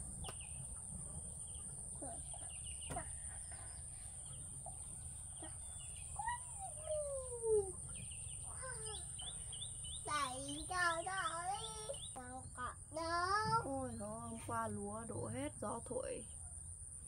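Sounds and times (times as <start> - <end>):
chickens calling: 0.0 - 12.3.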